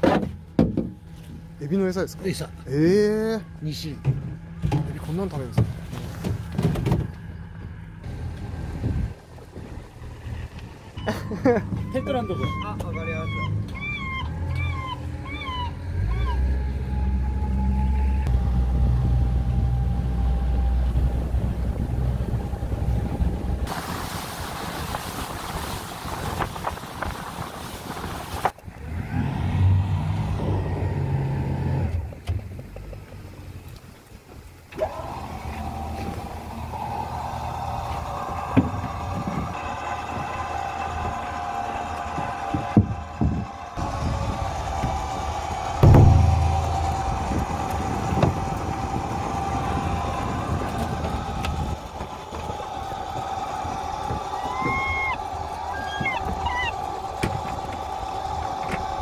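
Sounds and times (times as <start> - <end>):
boat engine humming: 0.0 - 59.0
faint engine hum: 0.4 - 23.7
rush of wind and water: 4.8 - 14.0, 18.2 - 59.0.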